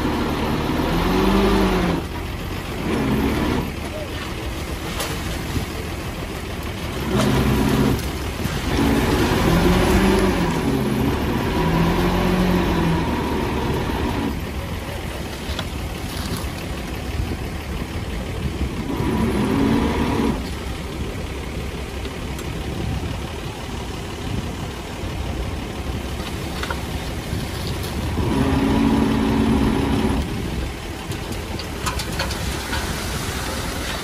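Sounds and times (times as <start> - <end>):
heavy diesel engine revving: 0.0 - 34.0.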